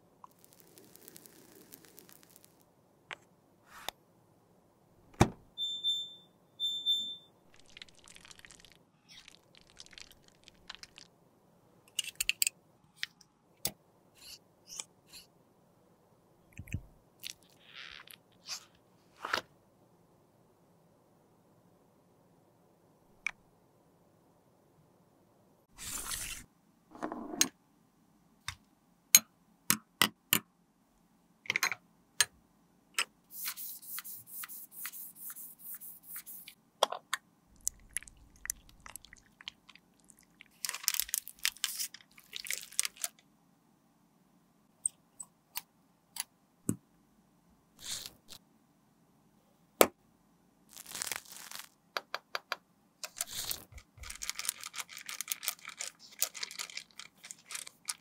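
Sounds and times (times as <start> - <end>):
sticky gel crackling: 0.3 - 2.6, 7.5 - 11.1, 37.6 - 43.2, 50.7 - 51.7
plastic bag crinkling: 37.6 - 43.2, 50.7 - 51.7, 53.3 - 58.0.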